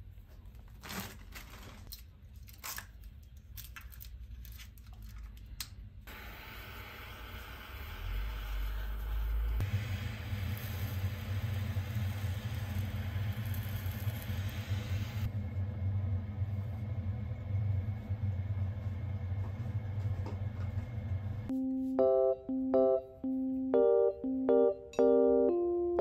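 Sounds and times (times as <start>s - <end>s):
butane torch flame hissing: 6.1s - 15.6s
piano music: 21.5s - 26.0s.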